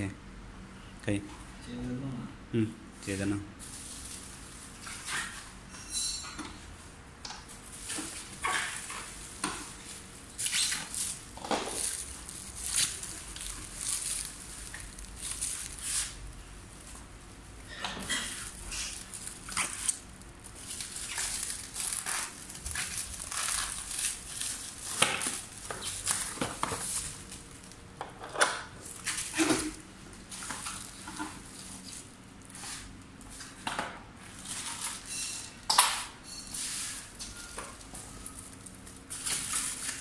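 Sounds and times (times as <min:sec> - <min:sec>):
plastic wrap crinkling: 0:03.6 - 0:05.4, 0:07.5 - 0:17.4, 0:18.2 - 0:27.9, 0:28.8 - 0:33.2, 0:37.0 - 0:40.0.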